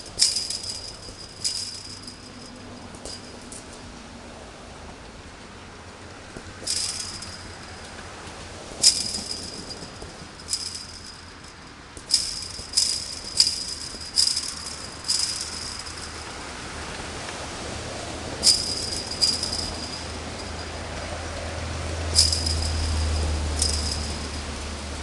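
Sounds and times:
chain-link fence rattling when kicked: 0:00.0 - 0:03.9, 0:06.4 - 0:07.9, 0:08.8 - 0:16.4, 0:18.4 - 0:20.9, 0:22.1 - 0:24.8.

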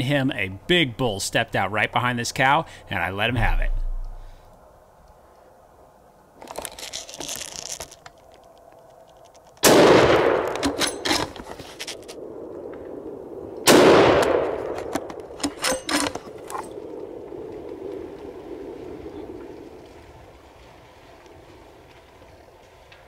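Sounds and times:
brief rustle: 0:06.4 - 0:09.6, 0:10.5 - 0:12.2
rifle bolt metallic clicks: 0:09.2 - 0:11.4, 0:14.2 - 0:16.7
rifle shots with echo: 0:09.6 - 0:11.0, 0:13.6 - 0:15.0.

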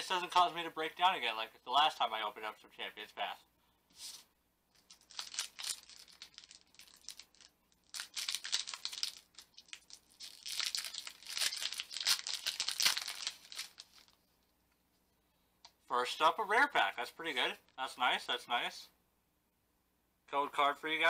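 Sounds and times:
foil pack crinkling and tearing: 0:04.8 - 0:14.2.

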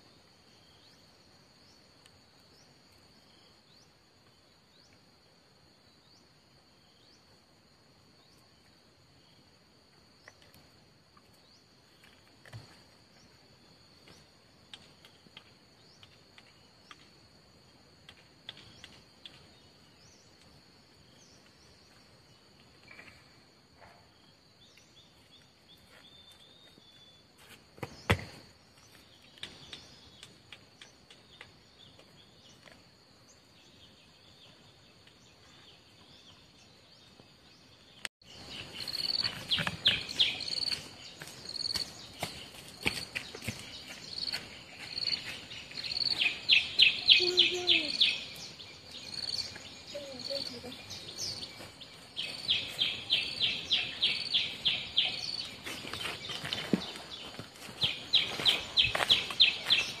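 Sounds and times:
insect chorus: 0:00.0 - 1:00.0
footsteps and twig clicks: 0:14.0 - 0:20.6, 0:27.4 - 0:32.9, 0:38.4 - 0:46.6, 0:47.2 - 1:00.0.

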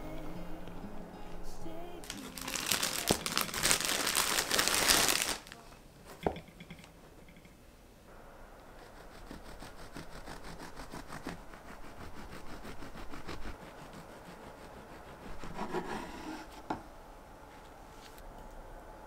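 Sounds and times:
bread knife sawing through bread: 0:08.8 - 0:16.6
knife scraping board: 0:15.2 - 0:16.8.

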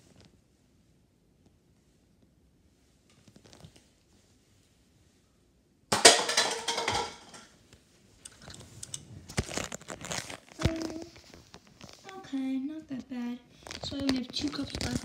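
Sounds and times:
cups clattering down: 0:05.9 - 0:07.5.

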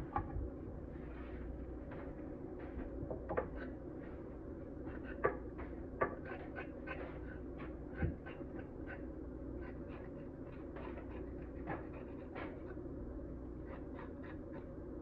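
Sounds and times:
knife scraping carrots: 0:06.1 - 0:12.8, 0:13.6 - 0:14.8.

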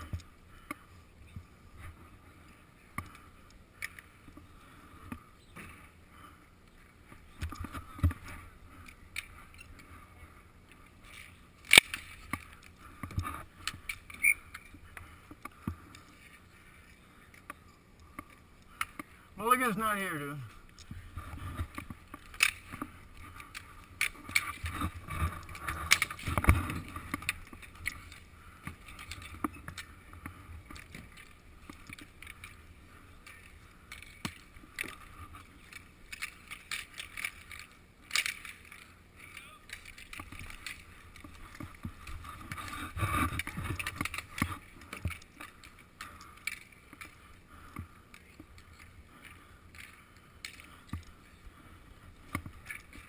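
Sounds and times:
skate wheels rolling on concrete: 0:00.0 - 0:53.0
sticks and puck clacking: 0:10.6 - 0:53.0.

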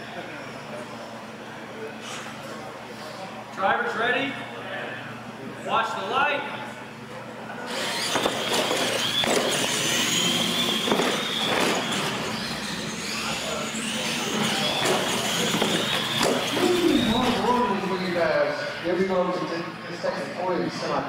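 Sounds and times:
toy truck motor whine: 0:07.7 - 0:17.7.

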